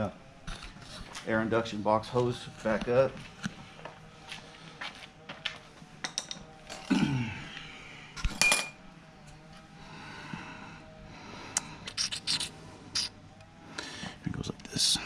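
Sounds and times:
rubber hose rubbing and scraping: 0.4 - 1.5, 11.9 - 13.2
metallic clink: 8.4 - 8.8.

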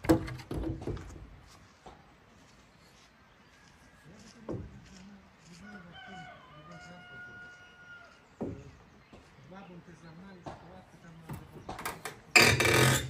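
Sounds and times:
sharp knocks: 0.0 - 1.2
rooster crowing: 5.5 - 8.2.

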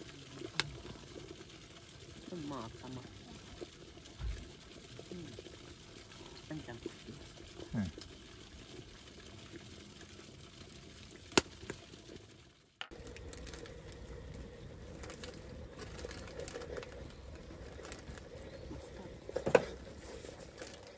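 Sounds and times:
fire crackling: 0.0 - 20.9
steady hiss: 12.9 - 20.9.

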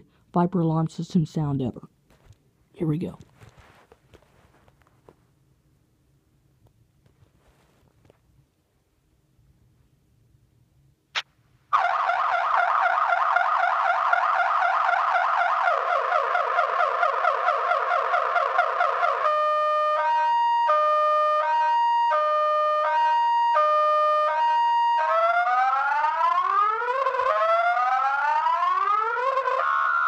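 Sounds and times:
car alarm siren: 11.7 - 30.0.

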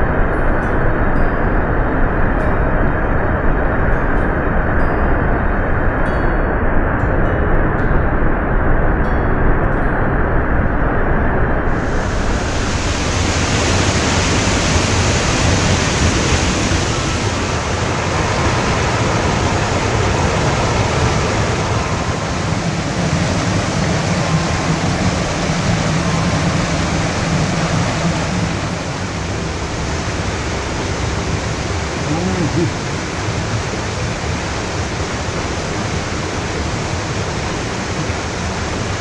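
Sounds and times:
stream rushing over rocks: 11.7 - 39.0.

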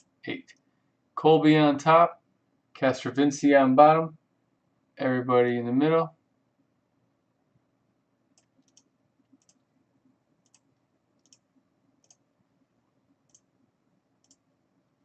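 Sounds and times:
mouse and keyboard clicks: 8.4 - 9.6, 10.4 - 11.4.

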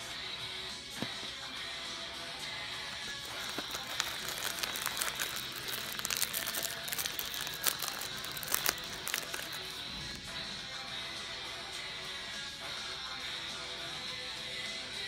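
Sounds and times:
snack packet crinkling: 3.0 - 9.9.

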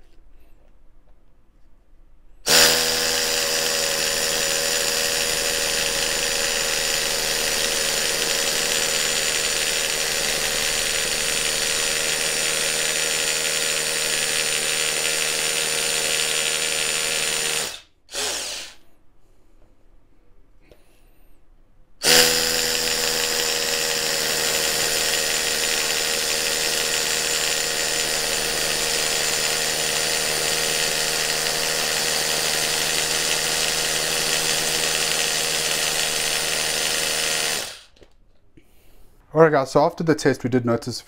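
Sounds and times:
hammer drill drilling into concrete: 2.5 - 18.8, 22.0 - 38.0.

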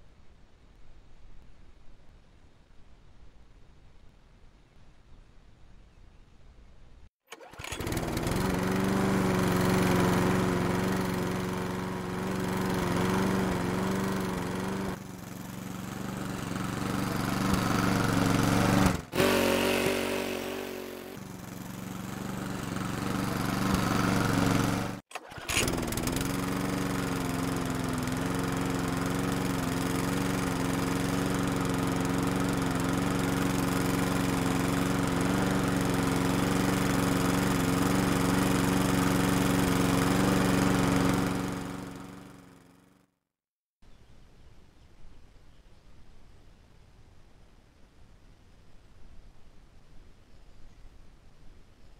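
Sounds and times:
lawn mower engine running: 7.3 - 43.0.

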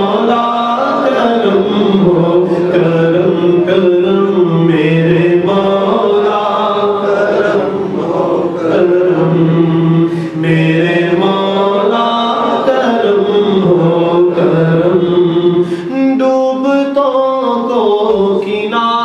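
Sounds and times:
man singing melodic recitation: 0.0 - 19.0.

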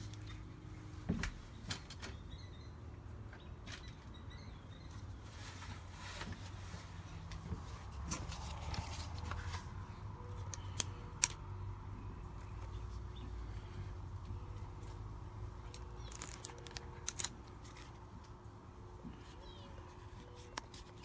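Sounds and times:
low steady rumble: 5.2 - 21.0.

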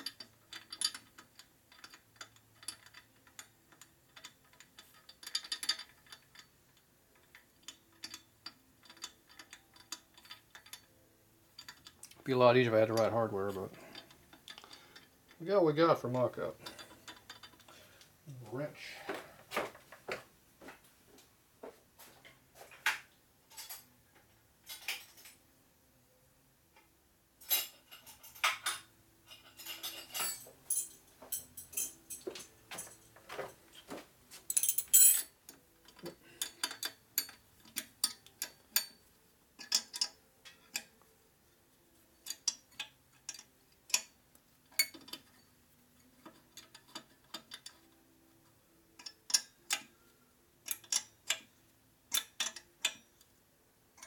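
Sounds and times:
wrench clicking on metal: 0.0 - 11.0, 11.6 - 12.2, 34.5 - 39.0, 39.6 - 41.0, 42.2 - 45.4, 46.0 - 48.0, 49.0 - 49.9, 50.6 - 51.5, 52.1 - 53.2.

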